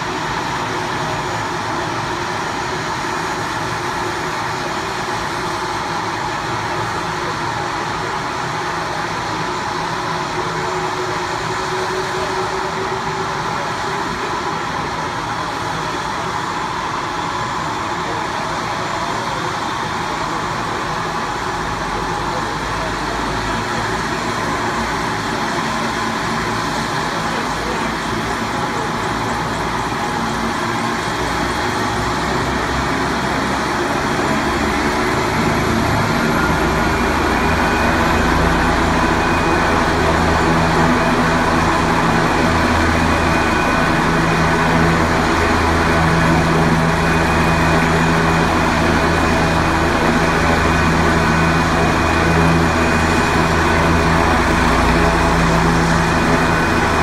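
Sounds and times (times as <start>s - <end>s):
helicopter rotor drone: 0.0s - 57.0s.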